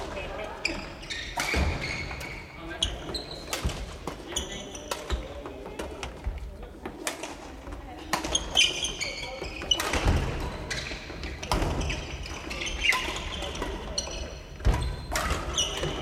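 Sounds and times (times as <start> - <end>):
shoes squeaking on wooden floor: 0.6 - 5.3, 8.3 - 16.0.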